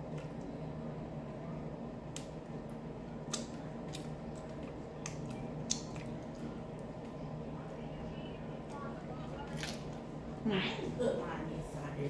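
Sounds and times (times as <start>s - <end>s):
steady low hum: 0.0s - 12.0s
mouth eating sounds: 3.2s - 7.2s.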